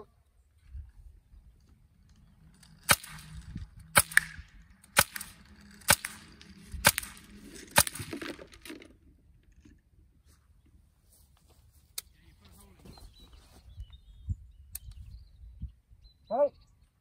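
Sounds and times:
air rifle shots: 2.8s - 8.6s.

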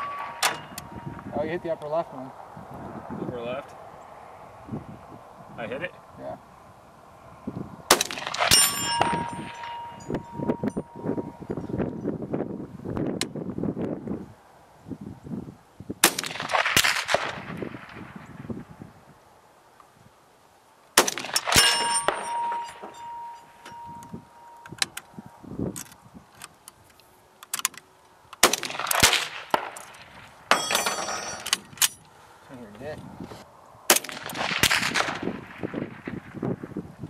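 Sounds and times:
rifle shots: 0.0s - 1.0s, 7.9s - 10.0s, 16.0s - 18.2s, 21.0s - 23.3s, 28.4s - 31.4s, 33.9s - 36.4s
steel target plate ringing: 0.0s - 1.7s, 8.0s - 11.7s, 21.0s - 24.8s, 30.5s - 31.5s.

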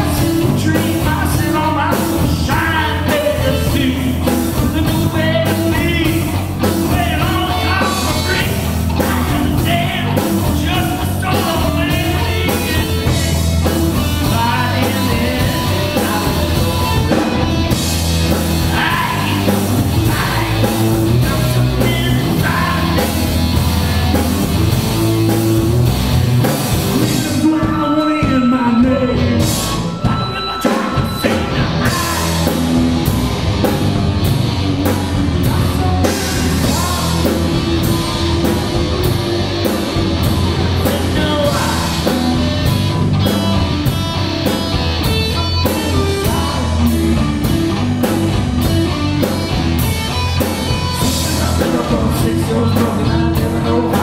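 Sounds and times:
person singing: 0.0s - 17.5s, 18.6s - 23.3s, 27.0s - 32.9s, 34.8s - 38.0s, 40.5s - 42.6s, 45.3s - 47.7s, 50.9s - 54.0s
drum kit: 0.0s - 54.0s
electric bass: 0.0s - 54.0s
electric guitar: 0.0s - 54.0s.

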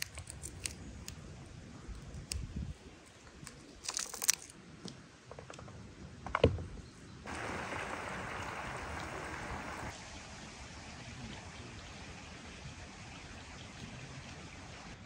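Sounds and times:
pomegranate arils crackling: 0.0s - 1.2s, 3.0s - 4.6s.

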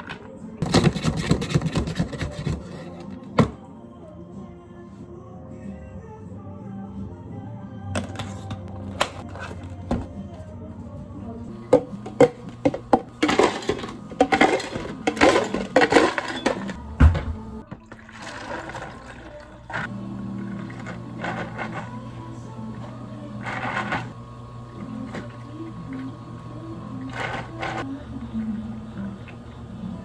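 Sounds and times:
ice cubes clattering into cups: 11.7s - 16.8s, 17.8s - 22.0s
steady hum: 18.6s - 30.0s.

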